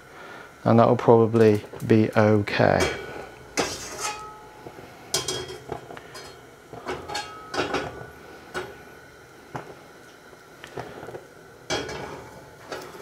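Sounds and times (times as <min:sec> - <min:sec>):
wok clinking on metal ring: 0:02.8 - 0:04.5, 0:05.1 - 0:08.0.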